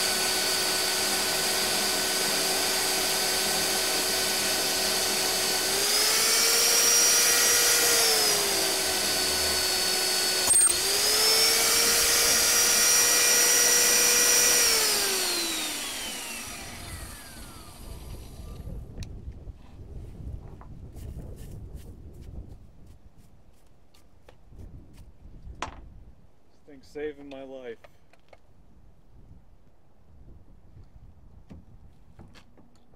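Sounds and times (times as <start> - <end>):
drill motor whining: 0.0 - 18.7.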